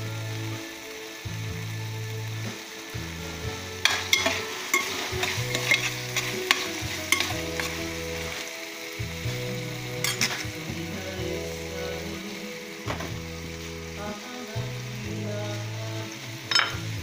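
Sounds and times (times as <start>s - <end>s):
vegetables sizzling in hot oil: 0.0s - 17.0s
utensil clinking against pan: 3.8s - 7.8s, 10.0s - 10.5s, 16.5s - 16.8s.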